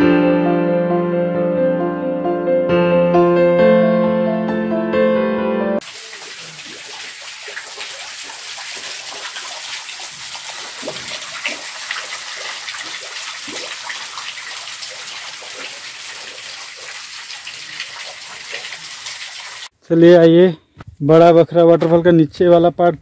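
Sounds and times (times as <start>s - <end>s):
water dripping into rock pool: 5.8s - 19.7s.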